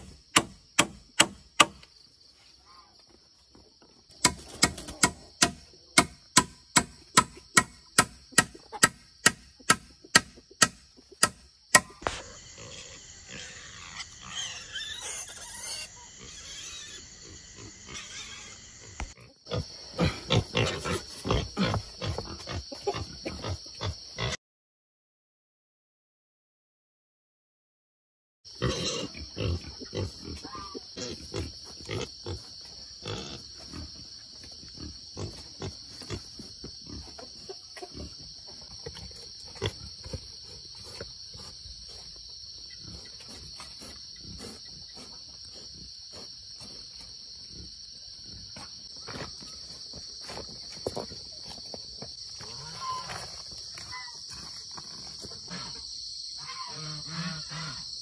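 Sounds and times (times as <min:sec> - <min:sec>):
high-pitched insect drone: 0:11.8 - 0:19.6
wild boar grunting: 0:12.0 - 0:24.4.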